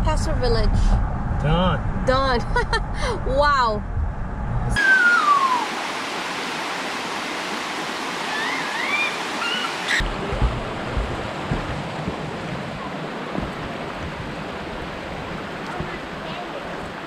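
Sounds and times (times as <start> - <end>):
bird calling: 4.8 - 5.8, 8.2 - 10.0
creek flowing over rocks: 4.8 - 17.0
wind buffeting microphone: 9.9 - 17.0
low thumps: 10.0 - 16.9.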